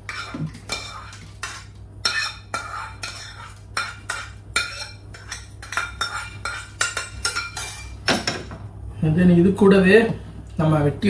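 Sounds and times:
spoon scraping a pan: 0.0 - 8.0.

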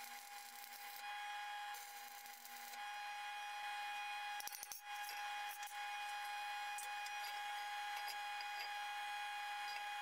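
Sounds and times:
welding arc crackling and hissing: 0.0 - 2.8.

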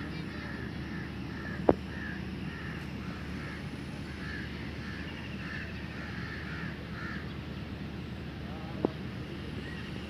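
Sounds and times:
low background rumble: 0.0 - 10.0
crows cawing: 0.3 - 7.3.

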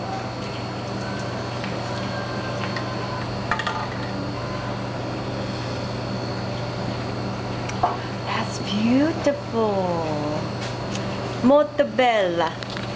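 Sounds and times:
low machine hum: 0.0 - 12.9.

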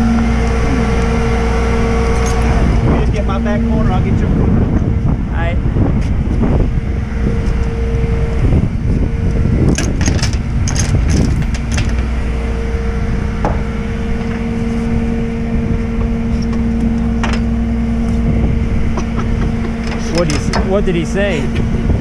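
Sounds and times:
truck engine running: 0.0 - 22.0
metal clicks and clanks: 9.7 - 12.1, 18.9 - 20.8.

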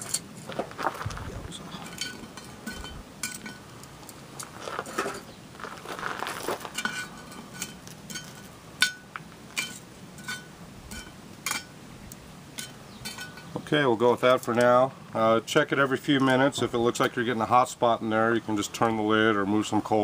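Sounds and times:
charcoal scraping on iron lid: 1.7 - 11.8, 12.5 - 13.6
metal tongs clinking on iron lid: 1.8 - 3.6, 9.6 - 11.7, 12.6 - 13.5.

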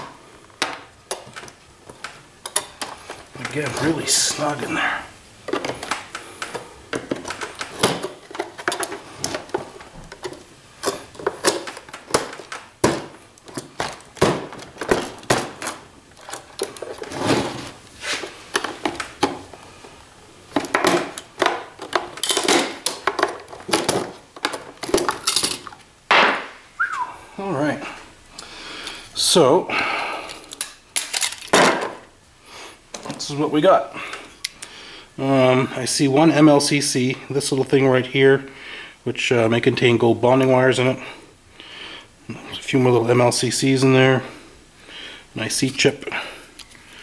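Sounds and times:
plastic clatter: 5.4 - 19.6, 20.5 - 26.5, 30.5 - 32.0.

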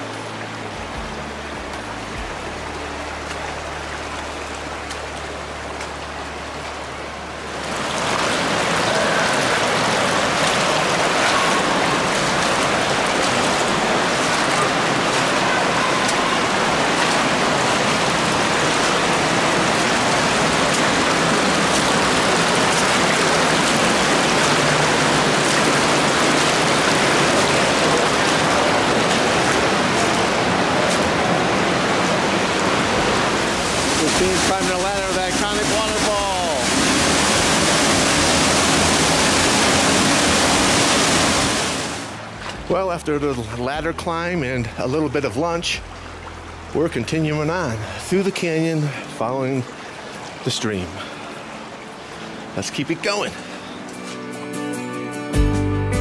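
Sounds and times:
background music: 0.0 - 6.4, 50.4 - 56.0
creek rushing over rocks: 0.0 - 54.5.

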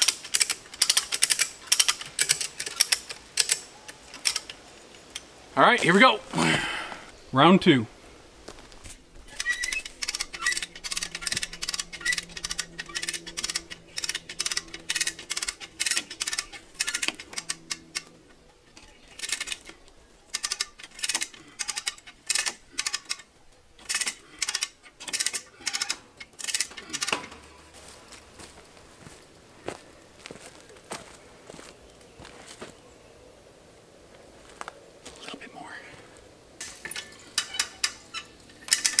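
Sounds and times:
metal ratchet clicks: 0.0 - 4.6, 9.3 - 18.0, 18.8 - 27.3, 36.6 - 39.0.

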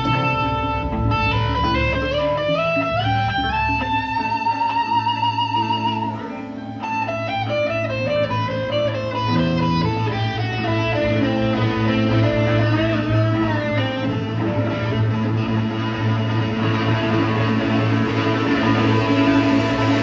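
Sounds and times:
electric guitar lead: 0.0 - 20.0
rock band playing: 0.0 - 20.0.

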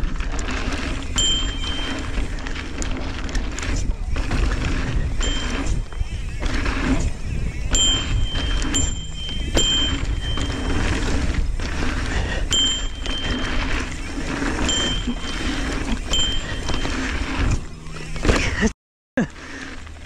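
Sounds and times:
knobby tyres rolling on dirt: 0.0 - 20.0
thin high whine: 0.8 - 2.9, 3.5 - 18.7
wind rushing over microphone: 3.4 - 17.7.

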